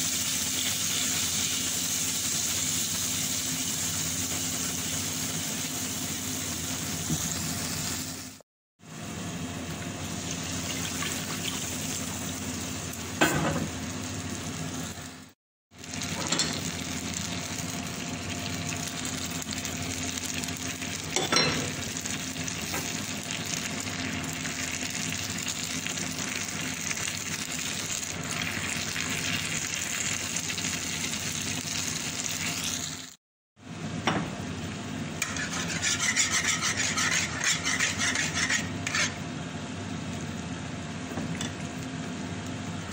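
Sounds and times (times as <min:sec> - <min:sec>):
liquid sizzling in a pan: 0:00.0 - 0:08.4, 0:10.0 - 0:33.2
spatula scraping sauce: 0:35.2 - 0:39.2.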